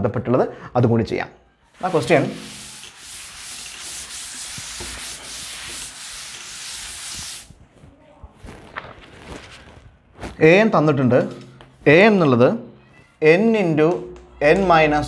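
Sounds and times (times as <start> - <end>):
cloth wiping a chalkboard: 1.7 - 10.5.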